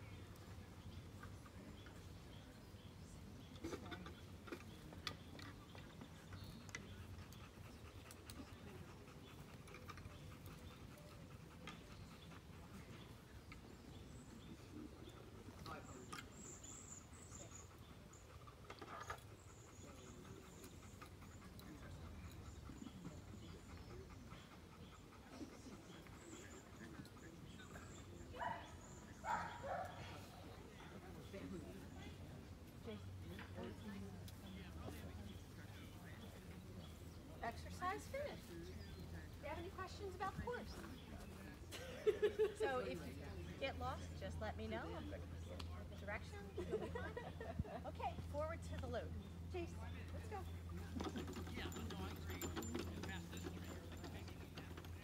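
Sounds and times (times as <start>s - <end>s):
faint background noise: 0.0s - 55.0s
dog panting: 3.6s - 32.2s, 50.6s - 55.0s.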